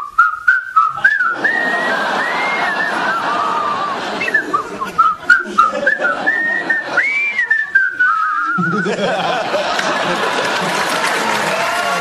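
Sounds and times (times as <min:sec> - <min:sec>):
men whistling a tune: 0:00.0 - 0:09.0
audience laughter: 0:01.0 - 0:12.0
audience applause: 0:01.4 - 0:04.8, 0:09.0 - 0:12.0.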